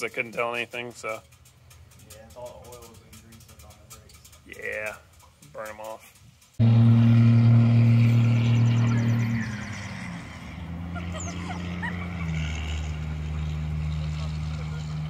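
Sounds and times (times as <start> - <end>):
vehicle engine drone: 6.3 - 15.0
short high squeaks: 7.7 - 10.5.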